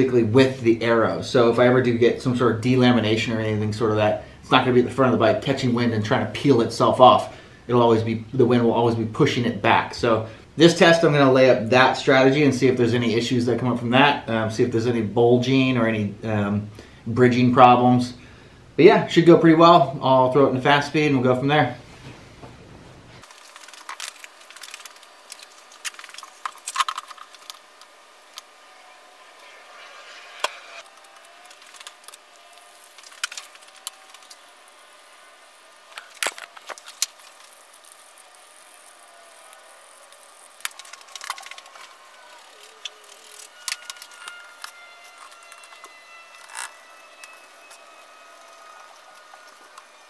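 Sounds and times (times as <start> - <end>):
steady hiss: 0.0 - 50.0.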